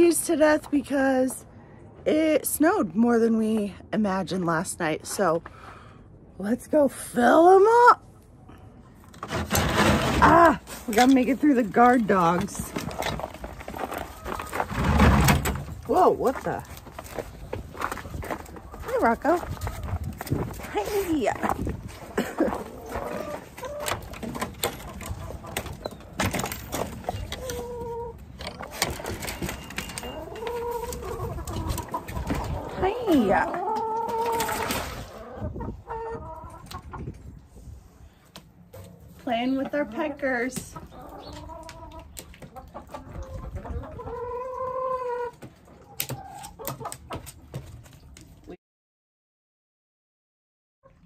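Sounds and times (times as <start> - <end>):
chickens clucking: 11.5 - 15.6, 16.2 - 26.2, 26.8 - 37.4, 38.8 - 47.8
hens calling: 22.1 - 24.1, 29.4 - 37.0.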